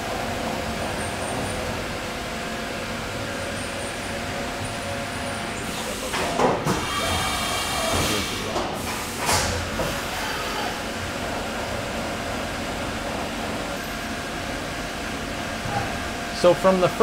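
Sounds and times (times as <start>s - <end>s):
milling machine cutting metal: 3.5s - 13.8s.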